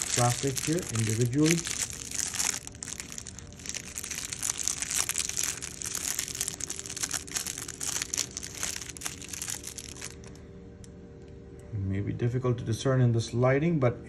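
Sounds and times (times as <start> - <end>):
plastic wrap crinkling: 0.0 - 10.4.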